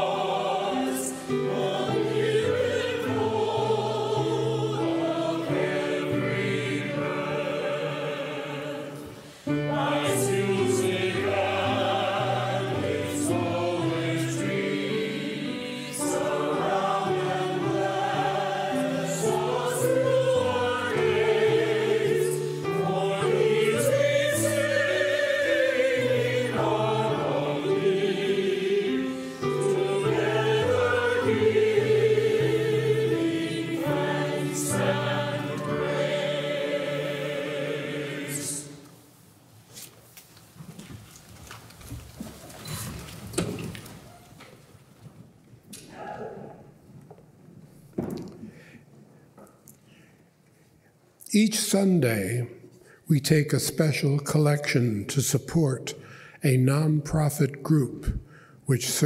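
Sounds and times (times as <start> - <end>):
piano accompaniment: 0.0 - 38.8
congregation singing a hymn: 0.0 - 39.2.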